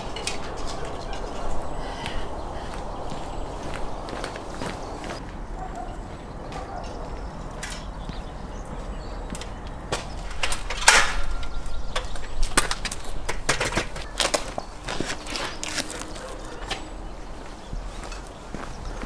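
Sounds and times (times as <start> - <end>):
metal ladder clanking: 0.0 - 1.6, 9.9 - 16.9
footsteps on paving: 0.5 - 10.3, 11.6 - 19.0.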